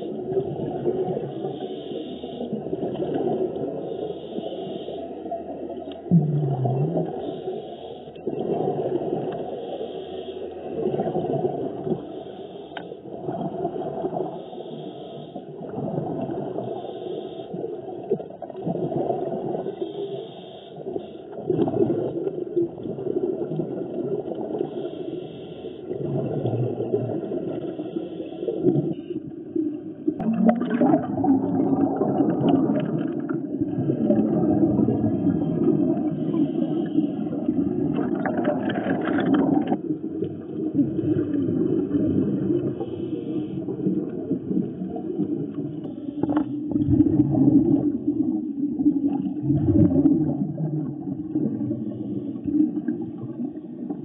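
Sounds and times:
muffled water wash: 0.0 - 20.1, 20.8 - 54.0
diver exhaling bubbles underwater: 6.0 - 7.2, 21.4 - 24.6, 25.9 - 27.8, 30.0 - 54.0.

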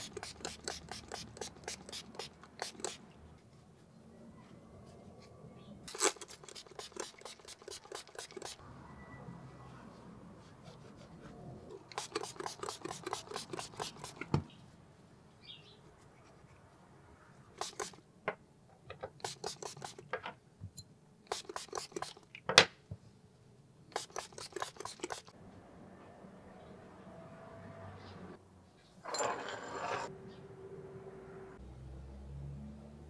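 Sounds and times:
spray bottle spritzing: 0.0 - 3.0, 5.9 - 8.6, 11.8 - 14.4, 17.6 - 18.0, 19.2 - 20.0, 21.3 - 22.2, 23.9 - 25.3.

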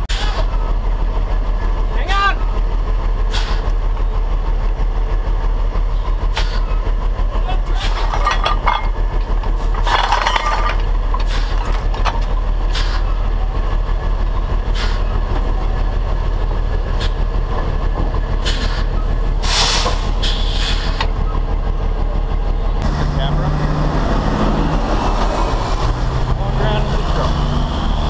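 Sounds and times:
diesel truck engine rumbling: 0.0 - 28.0
hiss bursts: 18.5 - 21.0.

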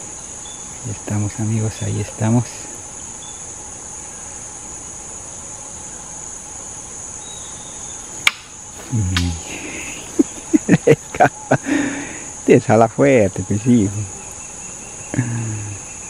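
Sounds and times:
insect chorus: 0.0 - 16.0
low voice: 8.8 - 9.9.

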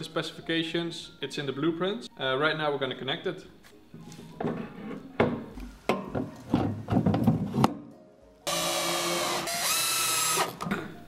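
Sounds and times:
cordless drill driving screw into wood: 8.5 - 10.6.

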